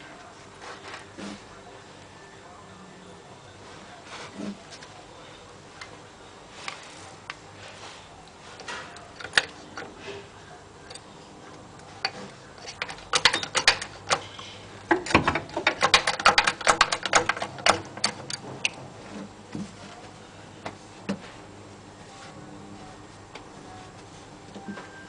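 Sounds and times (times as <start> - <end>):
rapid clicking of jack: 14.9 - 18.4.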